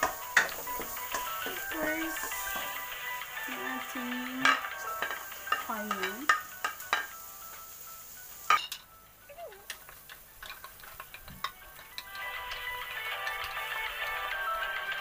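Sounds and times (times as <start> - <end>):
wooden spatula clattering on wok: 0.0 - 1.6, 4.4 - 7.1, 9.6 - 13.6
onions being stirred: 0.0 - 15.0.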